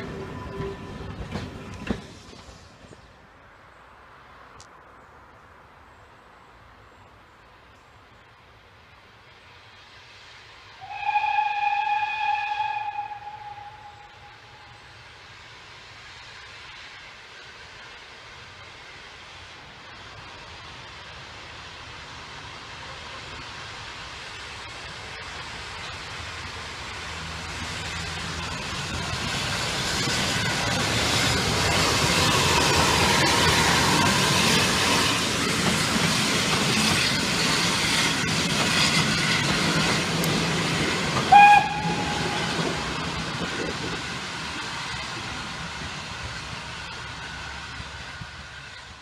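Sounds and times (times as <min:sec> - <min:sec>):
train coaches rolling by: 0:00.0 - 0:49.0
steam hissing: 0:09.3 - 0:48.6
steam locomotive exhaust: 0:09.3 - 0:49.0
train whistle blast: 0:10.8 - 0:14.8, 0:41.3 - 0:42.8.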